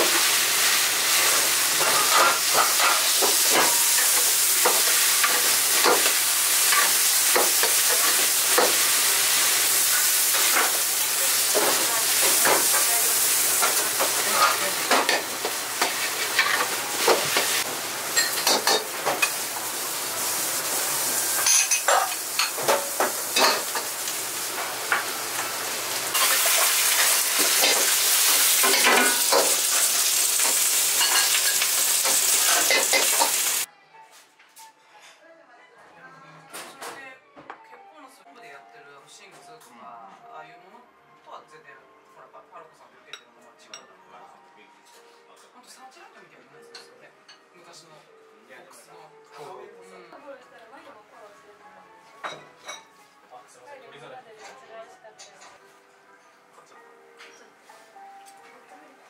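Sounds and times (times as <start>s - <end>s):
rice sizzling in a wok: 0.0s - 33.7s.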